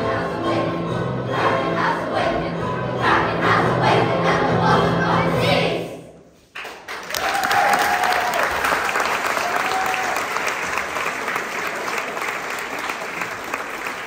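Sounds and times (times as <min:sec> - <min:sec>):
audience applause: 0:06.6 - 0:14.0.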